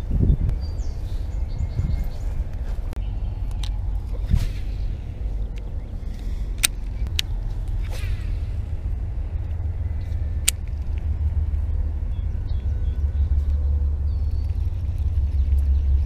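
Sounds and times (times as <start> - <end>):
steady low rumble: 0.0 - 16.0
sharp clicks: 6.5 - 8.3, 9.4 - 11.7.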